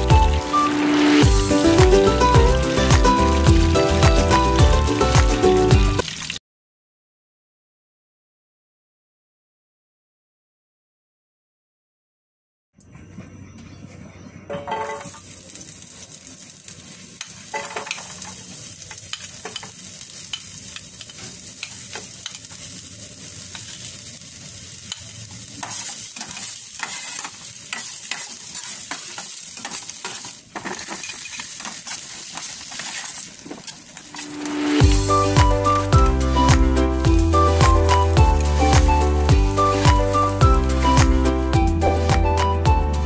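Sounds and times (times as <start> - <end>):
vegetables sizzling in hot oil: 0.0 - 6.4, 14.9 - 42.0
metal spatula scraping a pan: 14.5 - 15.4, 17.2 - 34.8.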